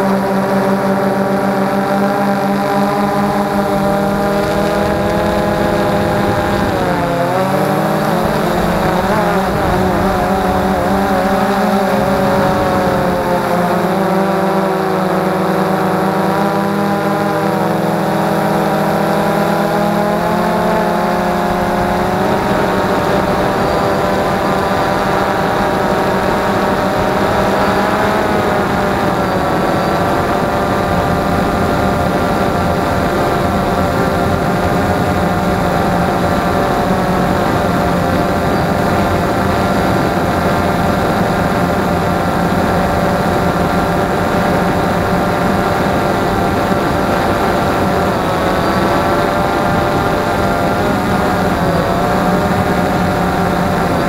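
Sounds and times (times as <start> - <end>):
drone motors and propellers whining: 0.0 - 54.0.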